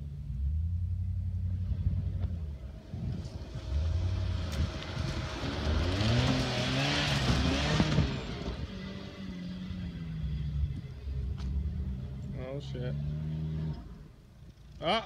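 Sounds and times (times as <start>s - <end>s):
engine revving hard: 3.6s - 9.2s.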